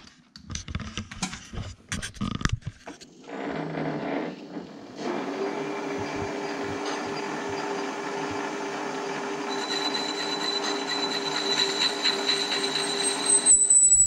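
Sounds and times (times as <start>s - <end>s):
cutting tool squealing and scraping: 3.2s - 14.0s
lathe motor and gear hum: 3.3s - 13.7s.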